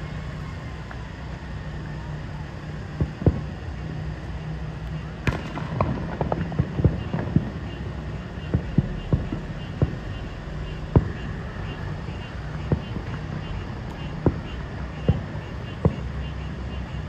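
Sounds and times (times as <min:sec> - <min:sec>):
distant fireworks bangs: 0:03.0 - 0:03.6, 0:05.2 - 0:17.0.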